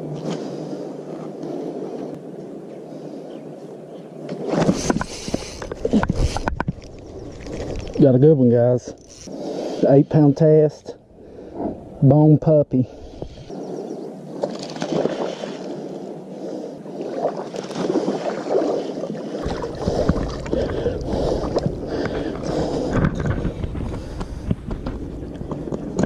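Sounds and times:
water splashing and sloshing: 4.3 - 8.2, 14.3 - 26.0
wind rumble on microphone: 19.4 - 26.0.

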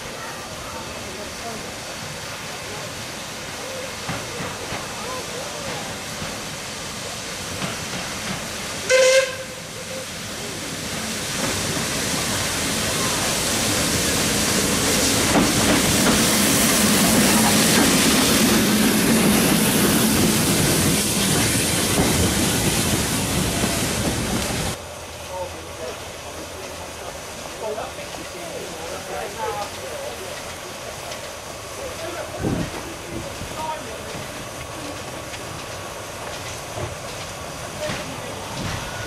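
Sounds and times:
steam hissing: 0.0 - 39.0
steam locomotive passing: 0.0 - 39.0
steam locomotive whistle: 8.8 - 10.0.

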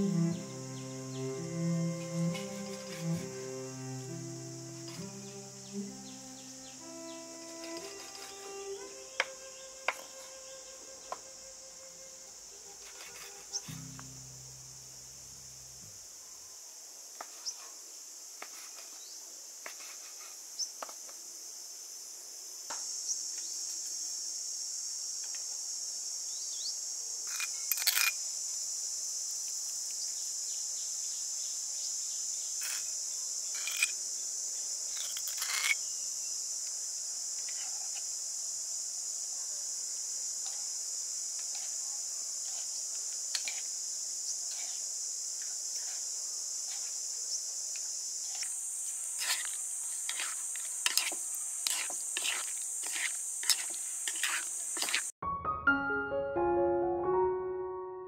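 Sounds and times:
insects droning: 0.0 - 55.2
metal spoon against bowl: 50.1 - 55.0.

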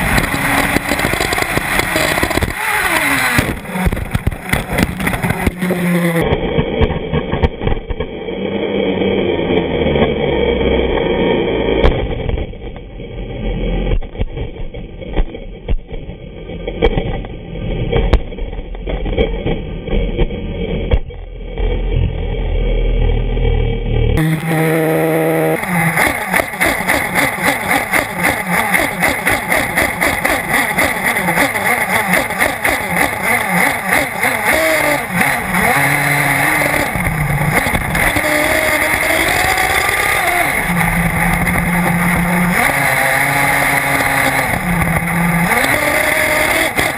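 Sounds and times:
small engine revving: 0.0 - 14.2, 19.9 - 46.9
tyres on dirt: 0.0 - 22.2, 24.2 - 46.9
knocks and clatter: 3.3 - 8.1, 13.9 - 21.2.

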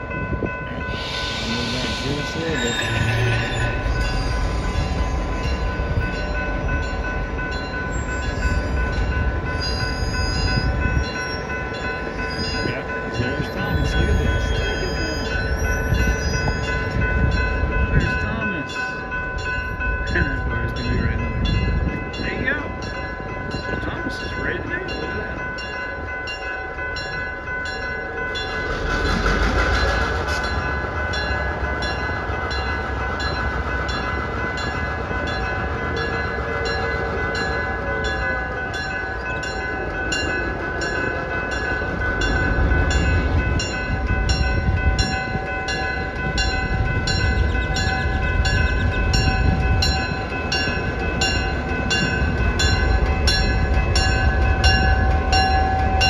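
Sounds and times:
diesel locomotive rumble: 0.0 - 56.0
railroad crossing bell ringing: 0.0 - 56.0
rush of noise: 0.6 - 6.3.

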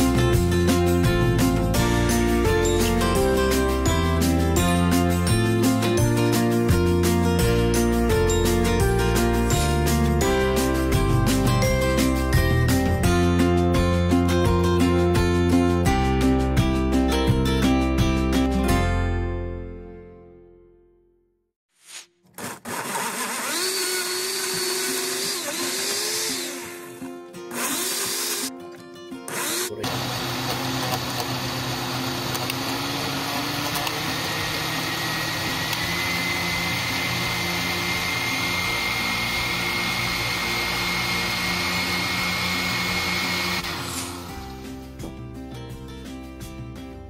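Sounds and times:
blender motor whining: 22.3 - 28.5, 29.3 - 44.7.

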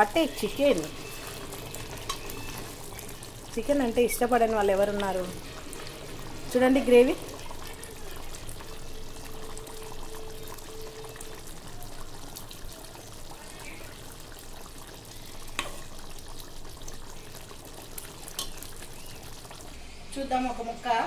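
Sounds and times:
thick gravy pouring and dripping: 0.9 - 19.8.

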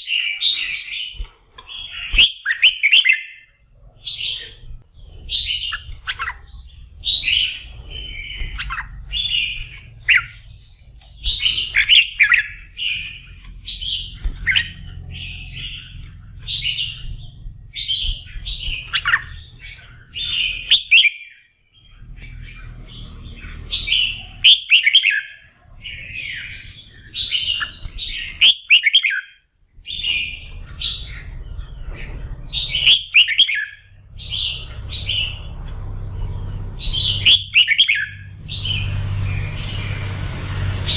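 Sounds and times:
bird singing warbled phrases: 0.0 - 40.9
low steady hum: 3.3 - 20.9, 29.6 - 40.9.

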